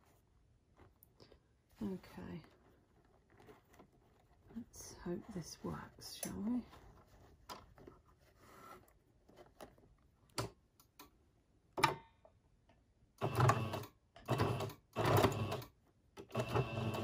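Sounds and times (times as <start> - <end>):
sewing machine stitching: 13.2 - 17.0.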